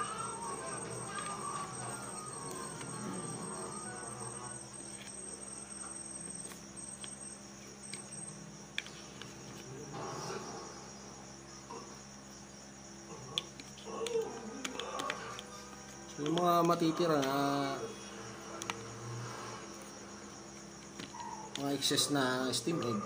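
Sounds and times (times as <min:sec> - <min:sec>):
faint high-pitched trill: 0:00.0 - 0:08.6.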